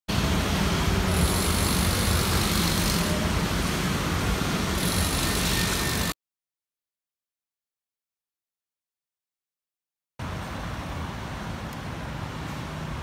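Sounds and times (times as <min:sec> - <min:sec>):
scooters and cars passing: 0:00.1 - 0:06.2, 0:10.2 - 0:13.0.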